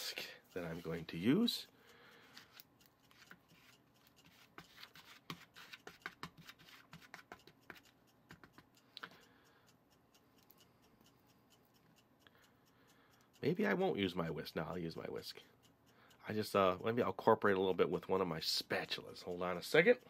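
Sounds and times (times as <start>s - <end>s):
metal whisk stirring in plastic bowl: 2.4s - 7.9s.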